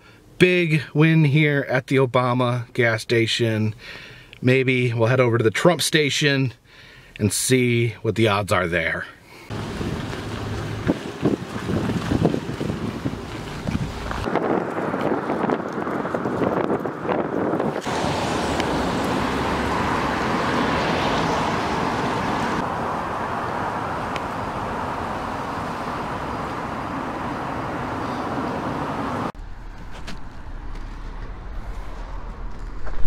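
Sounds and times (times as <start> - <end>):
thin street ambience: 9.2 - 33.0
road traffic rushing: 9.5 - 33.0.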